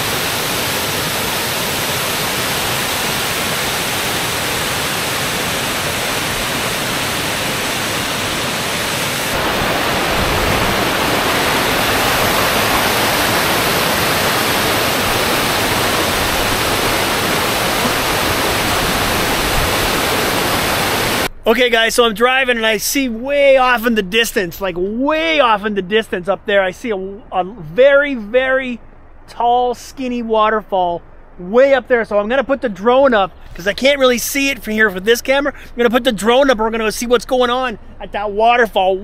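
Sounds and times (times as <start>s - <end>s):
waterfall rushing: 0.0s - 21.3s.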